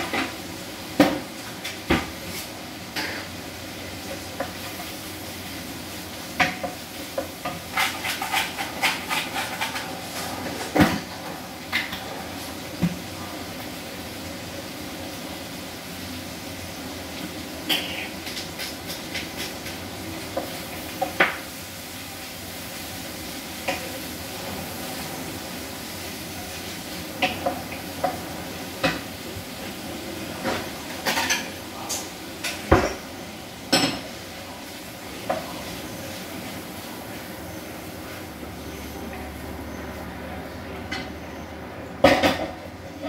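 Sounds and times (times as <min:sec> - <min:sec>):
wooden spatula scraping frying pan: 0:07.0 - 0:10.8.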